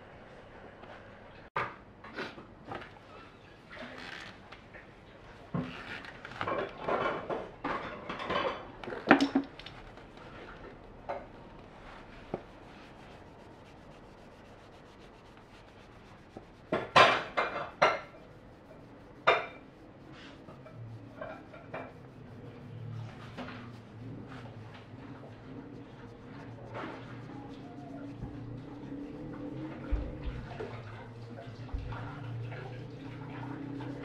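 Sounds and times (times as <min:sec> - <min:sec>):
cloth scrubbing metal cover: 0:09.8 - 0:34.0.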